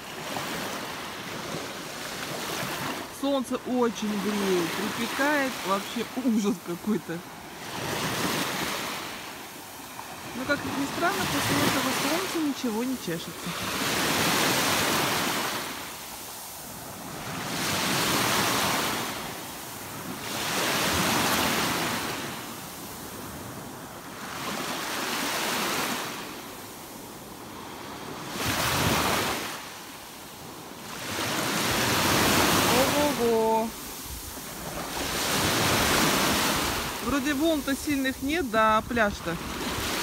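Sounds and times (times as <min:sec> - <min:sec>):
small waves breaking on shore: 0:00.0 - 0:40.0.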